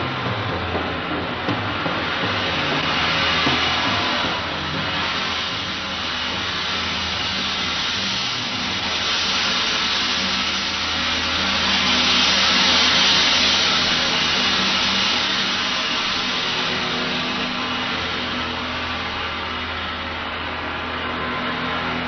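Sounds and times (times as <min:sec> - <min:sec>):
gong shimmering wash: 0:00.0 - 0:22.0
low steady drone: 0:00.0 - 0:22.0.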